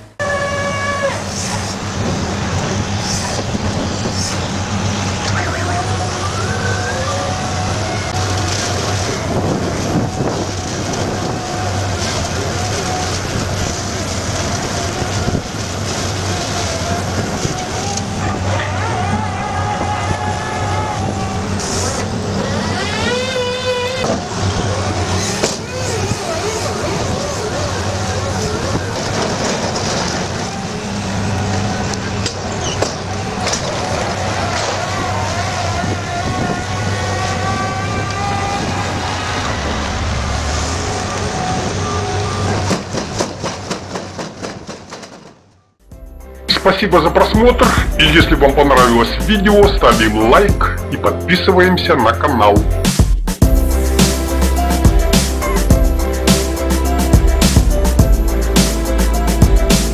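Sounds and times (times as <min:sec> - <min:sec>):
diesel engine droning: 0:00.0 - 0:43.1, 0:45.8 - 0:52.8, 0:53.4 - 0:59.9
hydraulic whine: 0:19.9 - 0:26.8
diesel engine hum: 0:45.8 - 0:59.9.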